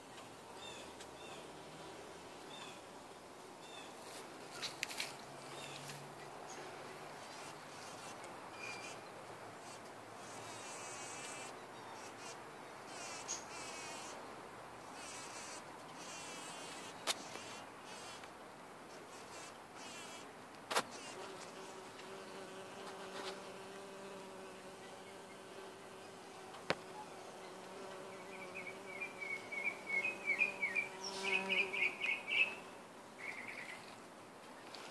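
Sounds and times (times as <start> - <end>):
bumble bee buzzing: 7.2 - 8.2, 9.6 - 14.2, 15.0 - 18.3, 19.1 - 20.2, 20.8 - 32.5.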